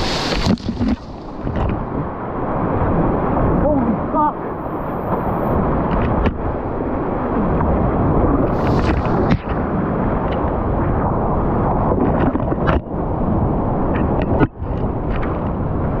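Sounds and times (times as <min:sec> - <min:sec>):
roar of whitewater rapid: 0:00.0 - 0:10.5
waves splashing over boat: 0:00.0 - 0:16.0.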